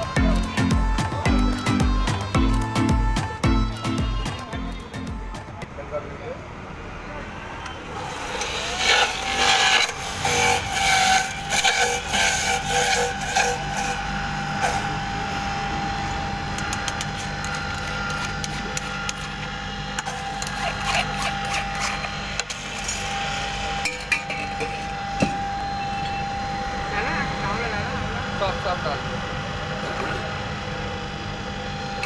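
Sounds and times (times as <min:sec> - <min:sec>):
juicer motor whining: 0:00.0 - 0:05.8, 0:06.7 - 0:32.0
juicer grinding carrots: 0:07.9 - 0:27.0.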